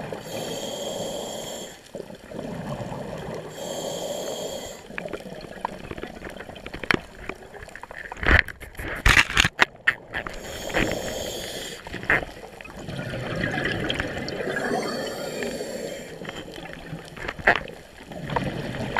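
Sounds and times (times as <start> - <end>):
regulator inhale hiss: 0.1 - 1.9, 3.4 - 5.0, 10.3 - 12.0, 14.6 - 16.4
bubbling exhalations: 10.0 - 17.0.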